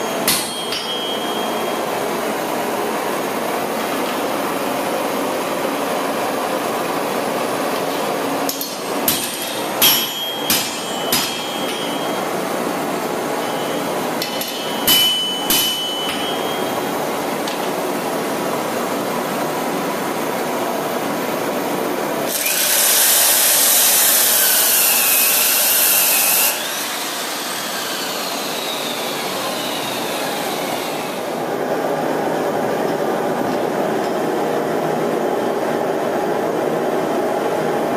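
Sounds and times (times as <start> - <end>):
forge blower running: 0.0 - 37.9
metal clanks: 0.2 - 1.6, 8.5 - 12.3, 13.4 - 16.8
chop saw cutting steel: 22.3 - 31.3
saw motor whining down: 22.3 - 31.3.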